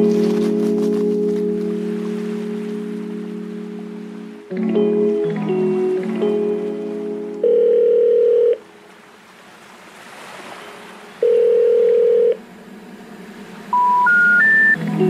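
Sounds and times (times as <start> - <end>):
telephone ring tone: 7.4 - 8.6, 11.2 - 12.4, 13.8 - 14.8
short rising beeps: 13.7 - 14.8.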